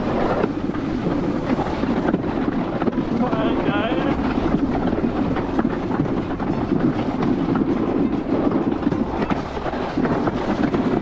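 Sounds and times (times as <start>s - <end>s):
sled rolling rumble with clicks: 0.0s - 11.0s.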